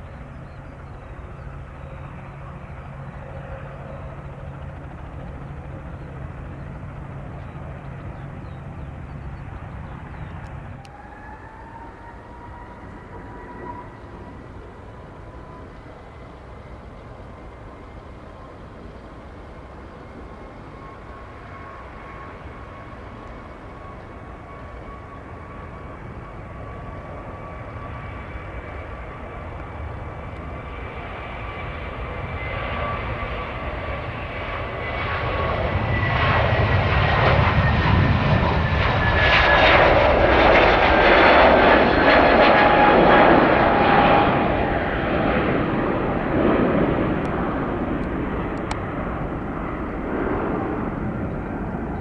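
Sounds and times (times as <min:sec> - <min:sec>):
jet engines whine and roar: 0:00.0 - 0:52.0.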